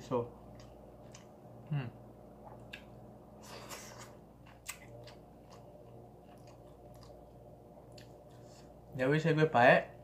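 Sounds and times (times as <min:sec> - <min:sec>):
person chewing food: 0:00.4 - 0:01.7, 0:02.3 - 0:08.9.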